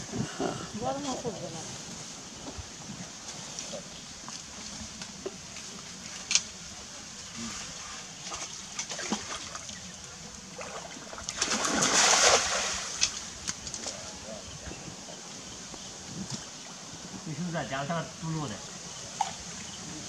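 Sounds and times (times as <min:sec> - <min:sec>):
pond water splashing: 0:08.2 - 0:14.1.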